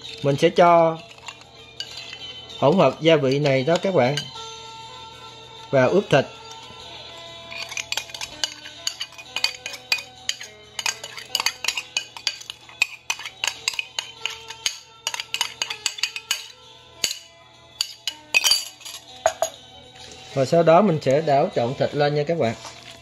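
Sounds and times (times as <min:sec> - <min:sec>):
metal spoon scraping ceramic bowl: 0:00.0 - 0:04.4, 0:07.4 - 0:20.5
soft background music: 0:00.0 - 0:23.0.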